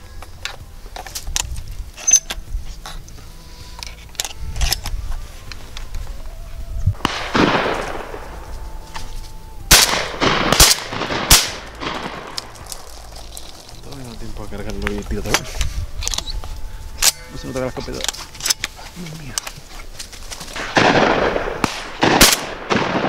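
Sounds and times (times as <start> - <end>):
shells clicking into gun: 3.8 - 5.0, 9.8 - 16.3, 18.0 - 19.6
shotgun shots: 7.0 - 8.4, 9.7 - 12.6, 20.6 - 23.0.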